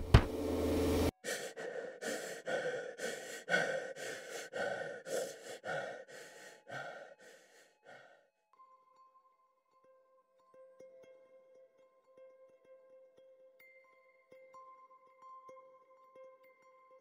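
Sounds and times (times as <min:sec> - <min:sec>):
person gasping breaths: 0:01.2 - 0:08.3.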